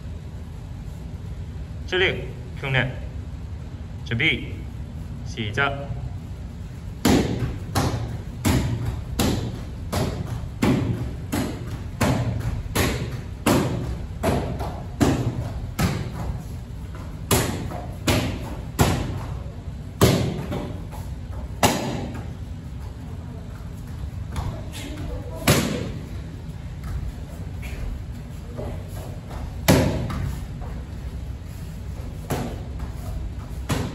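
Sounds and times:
kicks slapping a kick paddle: 7.0 - 22.3, 24.3 - 26.1, 28.6 - 30.8, 32.0 - 33.9.

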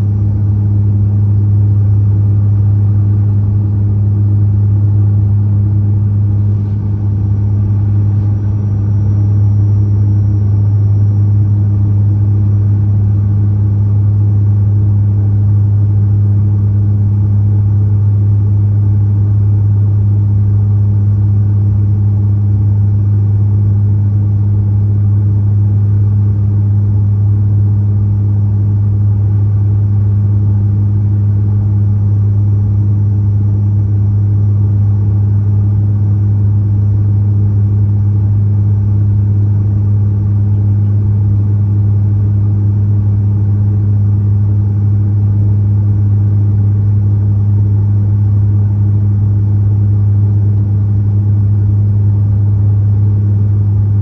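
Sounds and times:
turboprop engines droning: 0.0 - 54.0.

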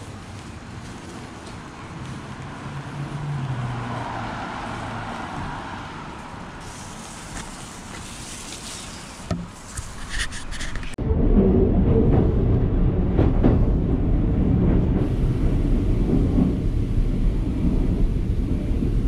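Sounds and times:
car passing on wet road: 0.0 - 9.3
rain on street: 0.0 - 9.3, 14.5 - 19.0.

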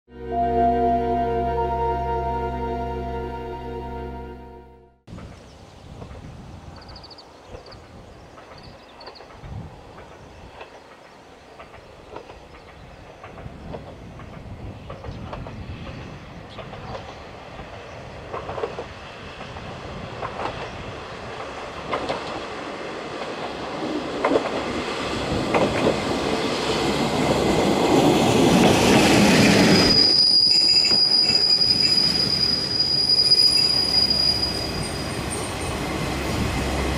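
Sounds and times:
diesel railcar approaching: 0.1 - 36.9
wheels clicking over rail joints: 7.5 - 26.4
wheels and brakes squealing: 29.4 - 36.4.

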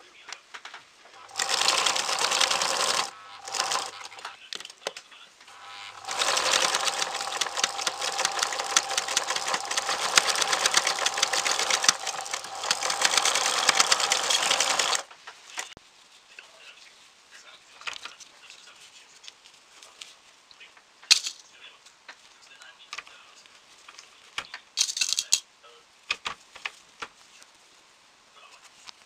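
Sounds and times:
sewing machine motor hum: 1.2 - 4.3, 5.5 - 15.1
sewing machine needle clatter: 1.3 - 4.3, 6.0 - 15.7.

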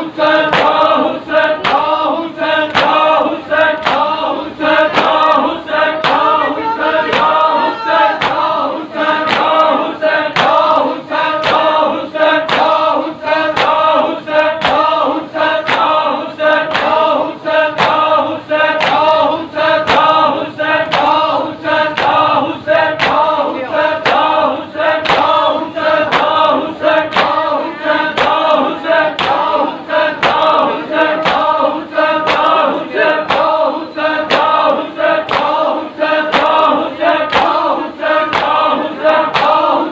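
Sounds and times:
men chanting in unison: 0.0 - 39.9
palms slapping chests: 2.7 - 7.5, 8.2 - 13.9, 17.8 - 29.6, 30.2 - 35.6.

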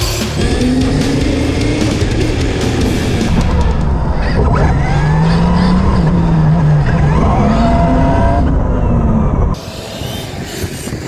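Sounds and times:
heavy steady rumble: 0.0 - 11.0
electric motor whine: 0.4 - 11.0.

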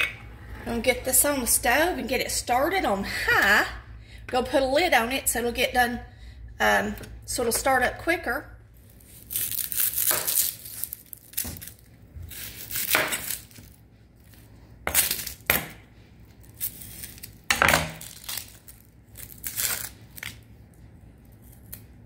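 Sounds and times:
onion skin rustling: 8.8 - 15.5, 16.2 - 22.0.

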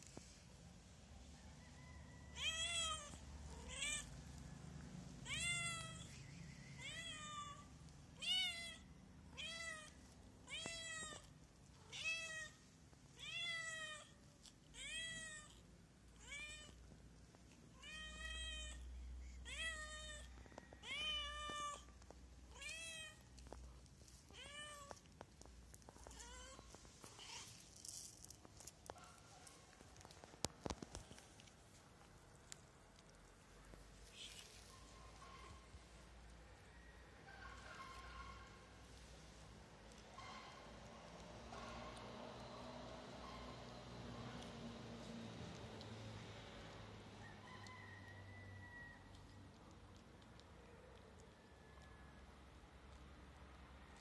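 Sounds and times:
cat meowing: 2.4 - 4.1, 5.2 - 6.1, 6.7 - 12.6, 13.2 - 15.6, 16.2 - 16.8, 17.7 - 23.3, 24.3 - 25.1.

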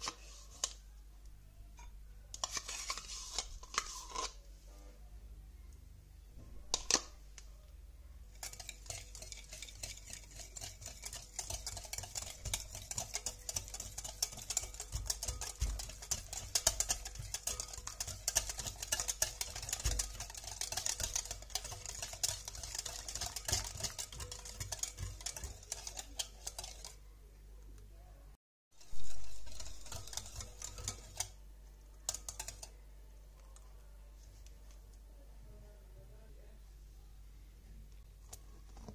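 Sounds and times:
whisk beating batter in glass bowl: 8.3 - 27.1, 28.8 - 31.4, 32.0 - 32.8.

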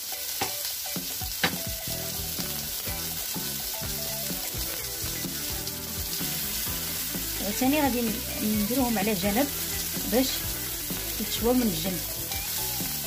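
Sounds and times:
fish sizzling on a griddle: 0.0 - 13.0
soft background music: 0.1 - 13.0.

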